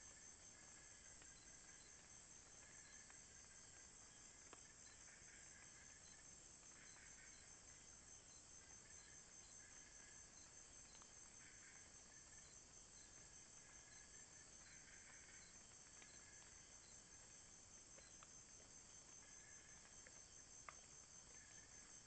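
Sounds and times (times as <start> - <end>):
insect high-pitched pulsing trill: 0.0 - 22.0
insect low buzzing call: 0.0 - 22.0
insect ticking: 0.0 - 22.0.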